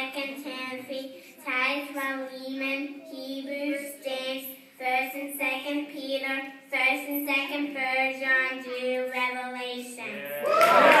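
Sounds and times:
noisy burst of high voices: 0:09.9 - 0:11.0.

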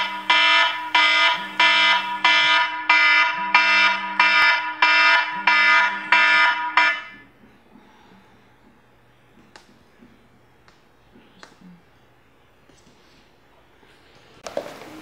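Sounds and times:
phone alarm chime: 0:00.0 - 0:07.2
low pulsing tone: 0:00.0 - 0:10.5.

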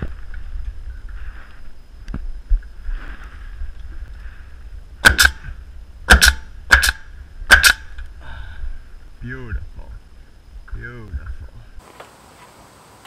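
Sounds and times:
nail gun firing: 0:05.0 - 0:05.4, 0:06.1 - 0:07.9.

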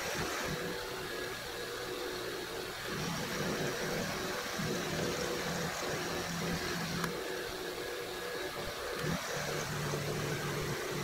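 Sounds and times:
milling machine cutting metal: 0:02.7 - 0:07.2, 0:08.9 - 0:11.0.

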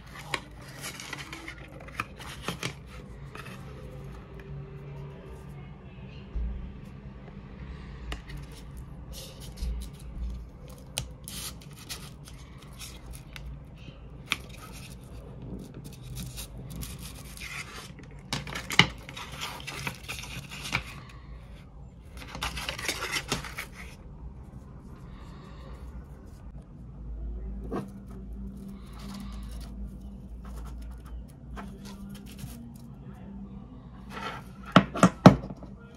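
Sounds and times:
cardboard and paper rustling: 0:00.0 - 0:04.3, 0:08.3 - 0:13.5, 0:14.2 - 0:21.1, 0:22.0 - 0:24.0, 0:27.6 - 0:32.9.

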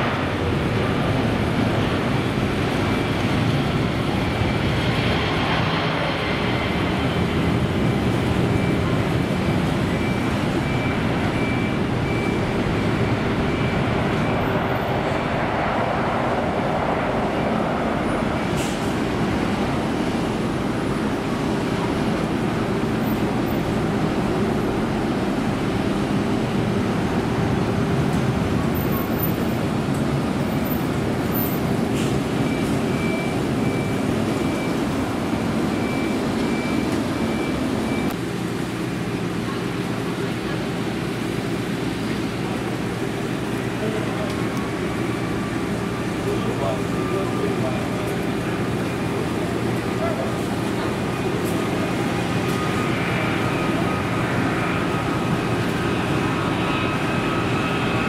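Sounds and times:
jet engines roaring: 0:00.0 - 0:58.0.

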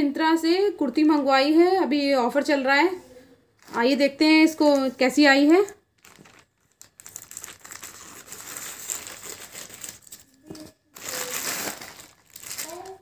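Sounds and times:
plastic bag crinkling: 0:03.6 - 0:13.0.

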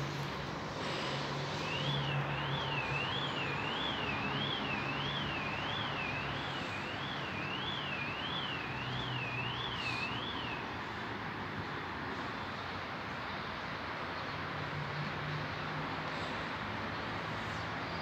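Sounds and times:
traffic noise: 0:00.0 - 0:18.0
warbling electronic alarm: 0:01.6 - 0:10.4.

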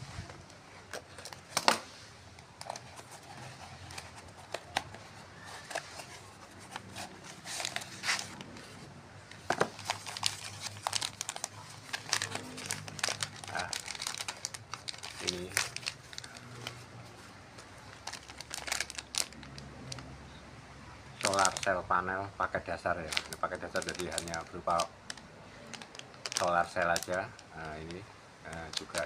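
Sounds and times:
plastic wrapping crinkling: 0:00.3 - 0:20.1, 0:21.2 - 0:21.8, 0:22.8 - 0:29.0.

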